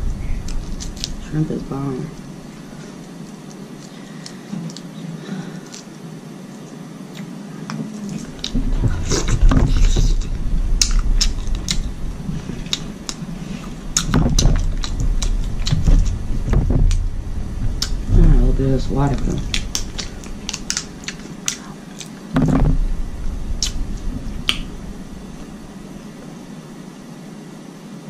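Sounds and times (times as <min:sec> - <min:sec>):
wet chewing smacks: 0:02.8 - 0:11.9, 0:12.5 - 0:16.2, 0:19.4 - 0:22.3.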